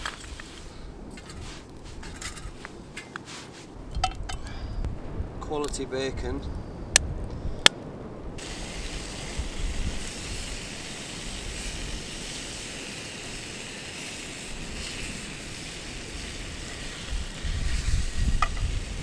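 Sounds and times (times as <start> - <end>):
wind hiss: 0.0 - 19.0
sea surf: 8.4 - 17.4.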